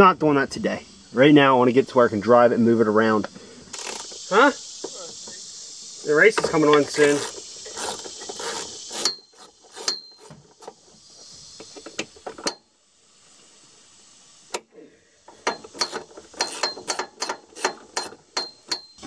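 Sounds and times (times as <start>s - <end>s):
ratchet wrench clicking: 3.7s - 5.9s, 6.5s - 12.6s, 15.3s - 19.0s.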